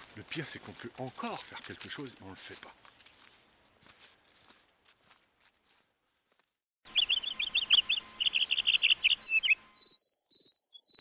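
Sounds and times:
insects chirping and trilling: 6.9 - 11.0.

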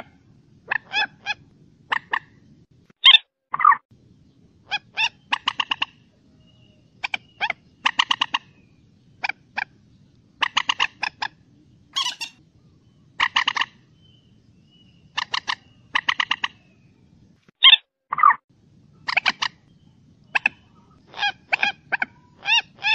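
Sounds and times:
moorhen clucking calls: 0.0 - 2.4, 4.6 - 9.8, 10.4 - 11.4, 12.0 - 12.4, 13.2 - 13.8, 15.1 - 16.7, 19.0 - 19.6, 20.2 - 22.9.

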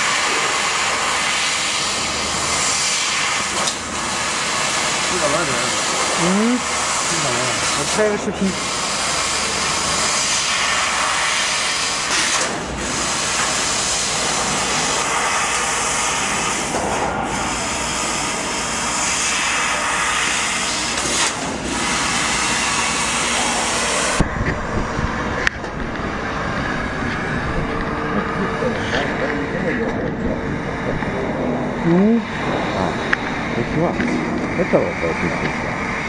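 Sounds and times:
laser cutter hiss: 0.0 - 24.3
low rumble: 24.2 - 34.6.

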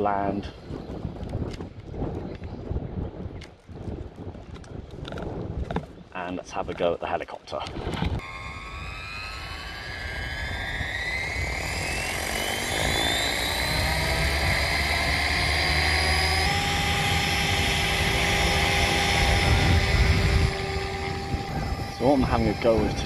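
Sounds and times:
rc helicopter motor and rotor whine: 7.6 - 23.0.

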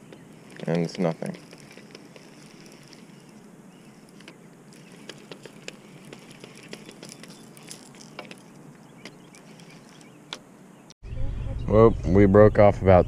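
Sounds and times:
fishing reel cranking: 0.0 - 8.6, 9.3 - 10.1
steady outdoor hiss: 0.0 - 13.0.

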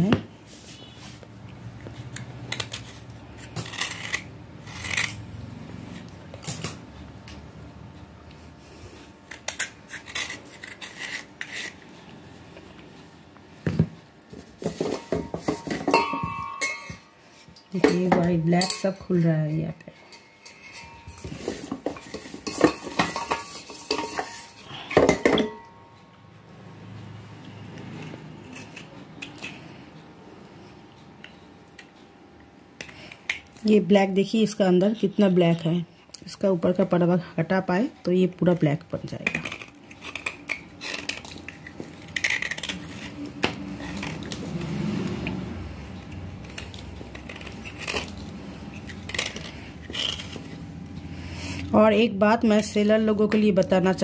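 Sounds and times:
knife scraping clay pot: 2.5 - 5.2, 9.3 - 12.2, 14.4 - 17.1, 17.7 - 25.7, 39.1 - 44.5, 46.4 - 50.6
pottery shards clinking on metal bowl: 14.8 - 17.1, 17.7 - 25.8.

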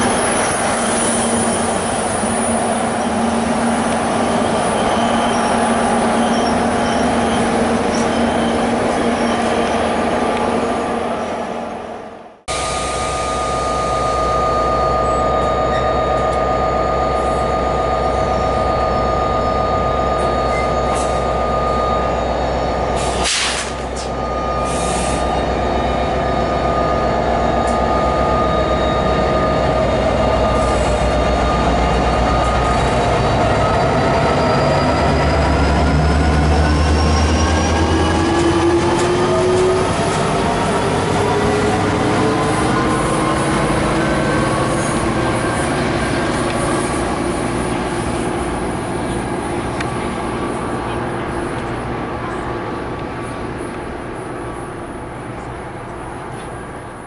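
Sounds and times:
high squeal: 0.0 - 10.0, 12.5 - 47.6
train rumbling past: 0.0 - 57.0.

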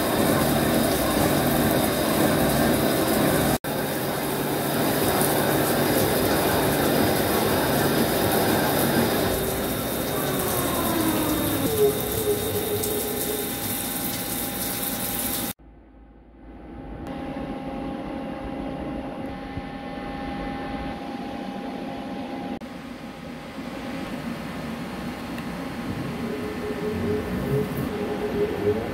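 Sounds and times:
machine hum: 0.0 - 28.9
rising machine whine: 25.6 - 28.9.

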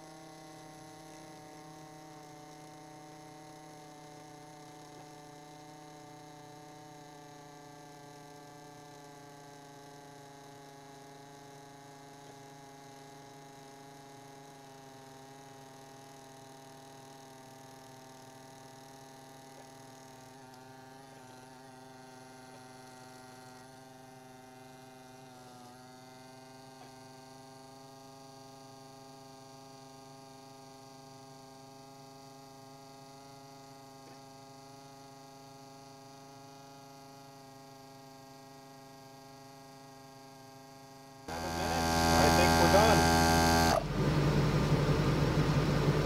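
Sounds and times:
low electrical hum: 29.8 - 46.0.

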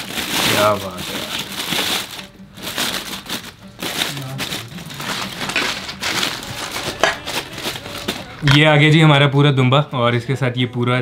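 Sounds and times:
aluminium foil crinkling: 0.0 - 8.7
background music: 0.0 - 11.0.

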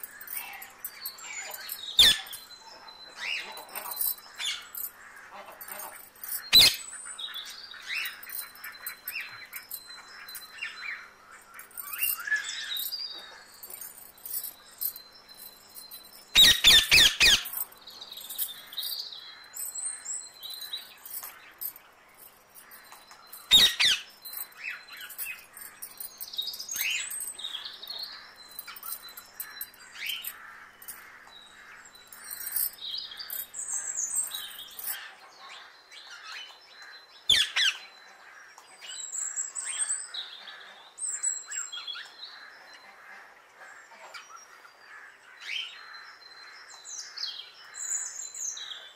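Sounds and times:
thin steady high tone: 0.0 - 31.0
birds chirping: 0.0 - 48.9.

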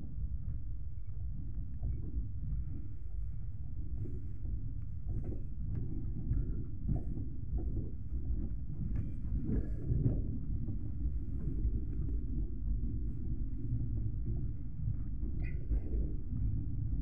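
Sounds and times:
wind on microphone: 0.0 - 17.0.

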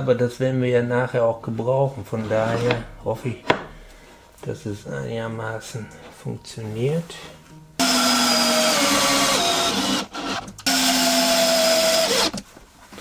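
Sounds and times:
cordless drill motor whine: 7.8 - 12.4.

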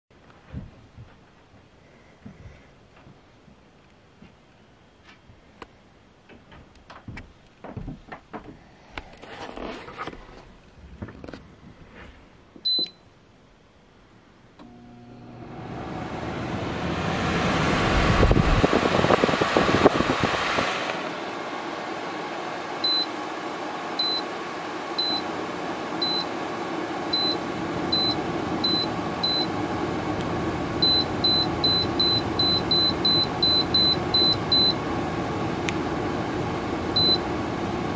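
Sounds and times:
control panel beeps: 12.7 - 13.0, 22.8 - 23.1, 24.0 - 24.2, 25.0 - 25.2, 26.0 - 26.3, 27.2 - 29.5, 30.8 - 34.8, 37.0 - 37.2
dehumidifier fan running: 14.6 - 37.9.

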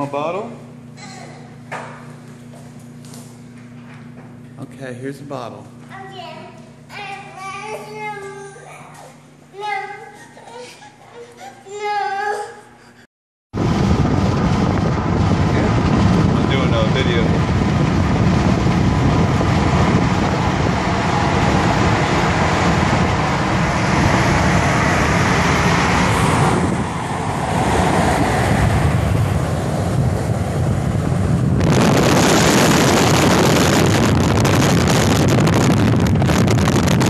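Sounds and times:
car road noise: 13.6 - 37.0
rush of wind: 13.6 - 37.0.

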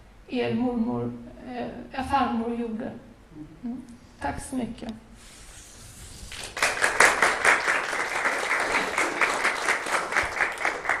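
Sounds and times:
audience applause: 6.3 - 11.0.

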